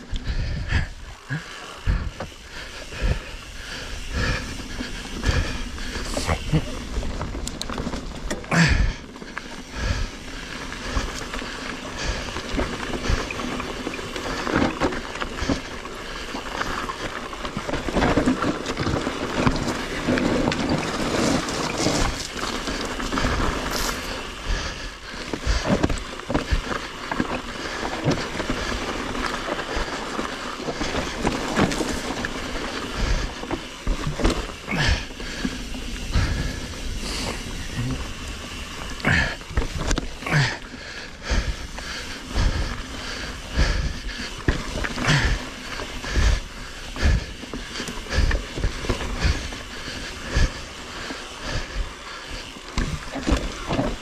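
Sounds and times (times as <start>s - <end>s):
bike knocking and rattling: 0.0s - 54.0s
bike tyres on dirt: 0.0s - 54.0s.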